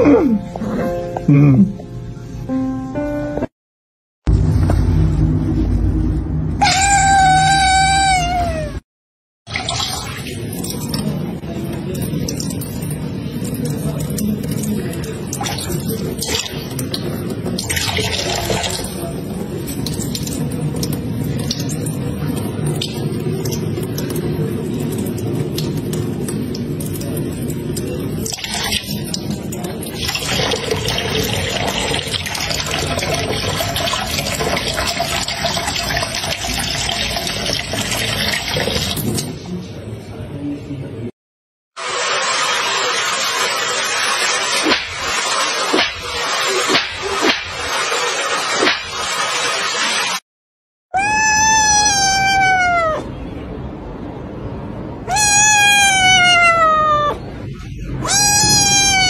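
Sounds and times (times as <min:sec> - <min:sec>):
kitten meowing: 0:06.6 - 0:08.8, 0:51.0 - 0:53.1, 0:55.1 - 0:57.2, 0:58.0 - 0:59.0.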